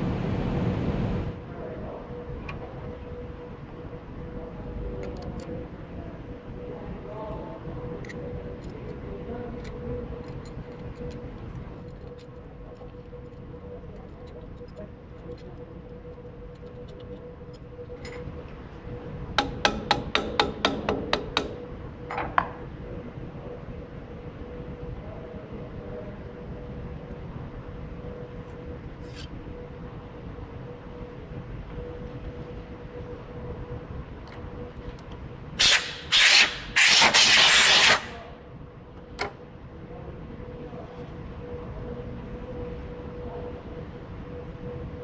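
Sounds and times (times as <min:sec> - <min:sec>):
faint steady hum: 0:00.0 - 0:45.0
mallet tapping on metal: 0:19.4 - 0:21.6
loud hiss bursts: 0:35.6 - 0:38.2.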